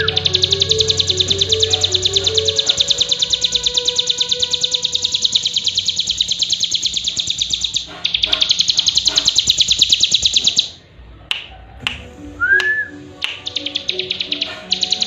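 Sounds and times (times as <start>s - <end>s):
bird trilling high notes: 0.0s - 10.8s, 12.4s - 15.0s
sharp clicks: 12.6s - 15.0s.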